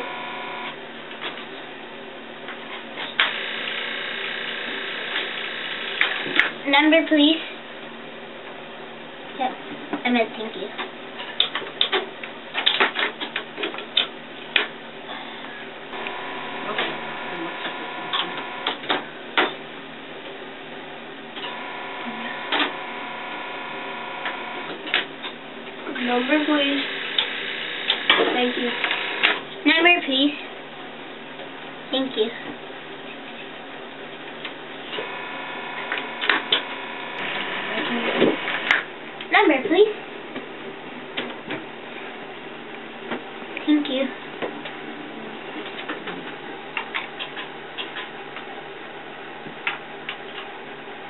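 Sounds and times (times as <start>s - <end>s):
steady buzzing tone: 0.0s - 0.9s, 3.1s - 7.0s, 15.9s - 19.1s, 21.3s - 29.5s, 34.8s - 39.4s
steady hum: 0.0s - 51.0s.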